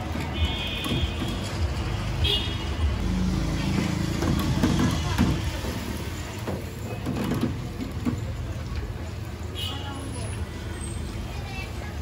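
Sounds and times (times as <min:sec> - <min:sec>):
low traffic rumble: 0:00.0 - 0:12.0.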